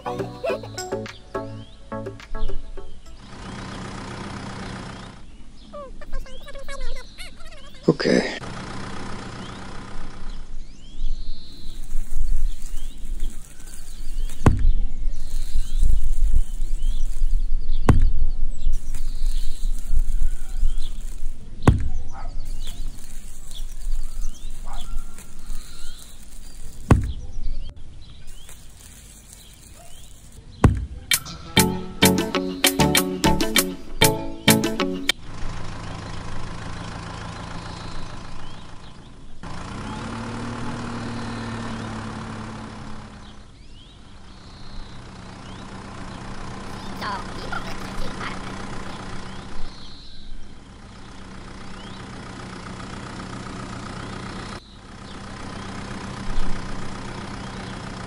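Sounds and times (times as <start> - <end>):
small birds chirping: 0.0 - 8.4, 9.1 - 35.2, 35.9 - 39.5, 42.9 - 58.0
low steady rumble: 8.4 - 29.7.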